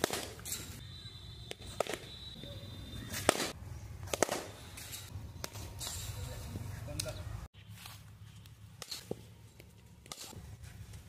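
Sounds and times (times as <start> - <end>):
bat striking cricket ball: 1.5 - 2.2, 3.1 - 4.6.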